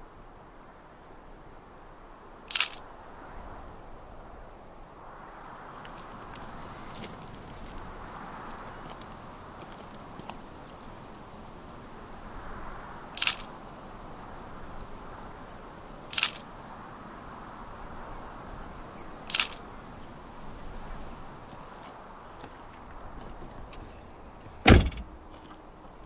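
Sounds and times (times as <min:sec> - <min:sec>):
faint outdoor background: 0:00.0 - 0:26.0
camera shutter clicking: 0:02.5 - 0:02.8, 0:13.2 - 0:13.5, 0:16.1 - 0:16.4, 0:19.3 - 0:19.6.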